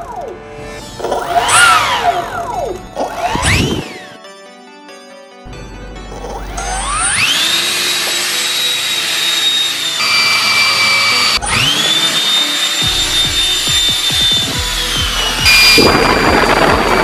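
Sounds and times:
ducted fan high whine: 0:05.5 - 0:17.0.

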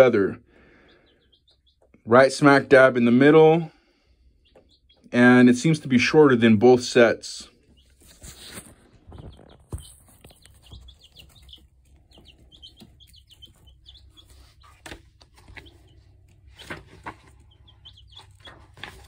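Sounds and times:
chicks peeping: 0:00.0 - 0:19.0.

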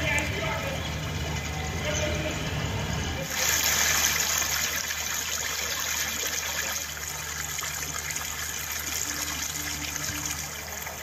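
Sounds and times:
low steady hum: 0:00.0 - 0:11.0
water rushing across road: 0:03.2 - 0:11.0.

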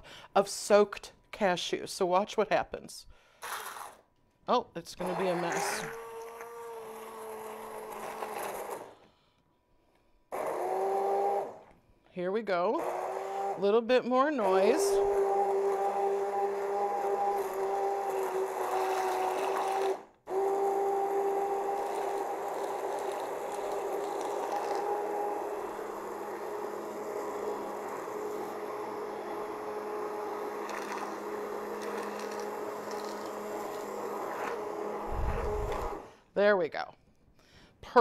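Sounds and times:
immersion blender whirring: 0:05.0 - 0:09.0, 0:10.3 - 0:11.8, 0:12.7 - 0:36.2.

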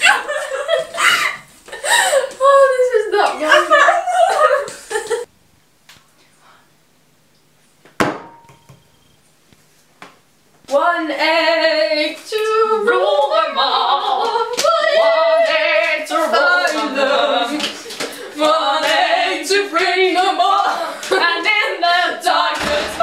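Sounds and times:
women singing unaccompanied: 0:10.7 - 0:23.0.

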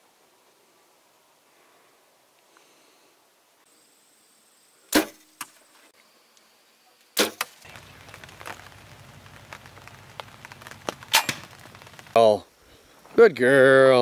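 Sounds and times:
low outdoor background hum: 0:00.0 - 0:14.0
sharp loud cracks: 0:04.9 - 0:05.3, 0:07.2 - 0:12.3
fainter echoing crack: 0:07.2 - 0:12.4.

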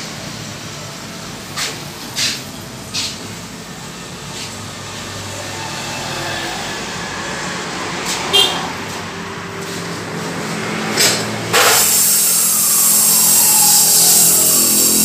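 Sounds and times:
cut-off saw grinding steel: 0:04.8 - 0:07.5, 0:10.5 - 0:15.0.

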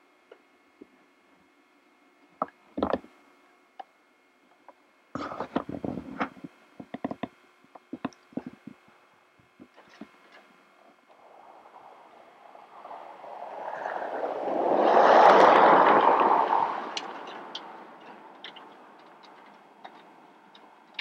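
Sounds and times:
vehicle driving past: 0:11.1 - 0:19.2.

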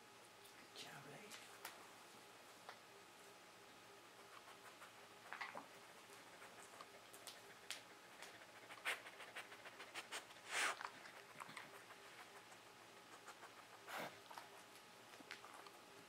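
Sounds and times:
dog sniffing: 0:04.2 - 0:15.8
paws clicking and tapping: 0:04.3 - 0:15.9.

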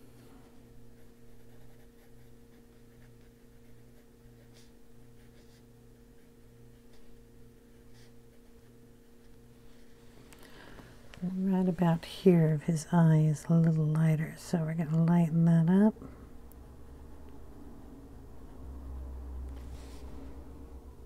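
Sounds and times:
low electrical hum: 0:00.0 - 0:21.0
pencil scratching on paper: 0:00.9 - 0:07.0.

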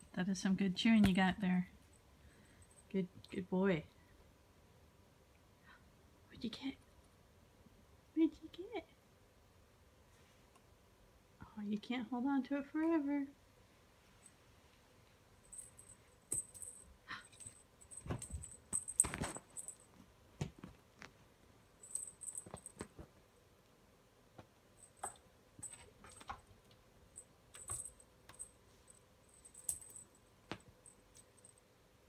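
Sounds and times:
cat paws tapping and scratching: 0:15.5 - 0:23.2, 0:24.4 - 0:31.5.

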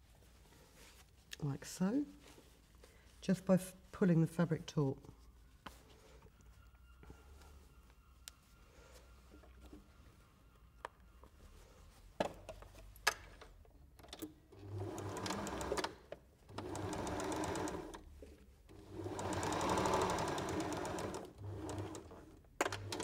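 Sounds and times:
sewing machine stitching: 0:14.5 - 0:18.0, 0:18.7 - 0:23.0.

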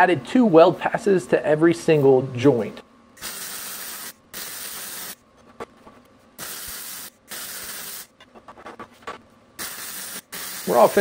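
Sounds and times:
welder arc hissing and crackling: 0:03.2 - 0:05.2, 0:06.4 - 0:08.1, 0:09.6 - 0:11.0.

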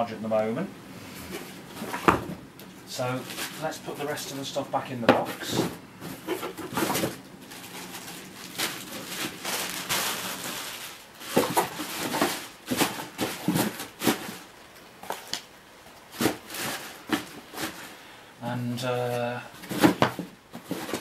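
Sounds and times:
packaging rustling and scraping: 0:01.3 - 0:02.4, 0:03.0 - 0:04.5, 0:05.2 - 0:15.5, 0:16.1 - 0:18.0, 0:19.0 - 0:21.0.

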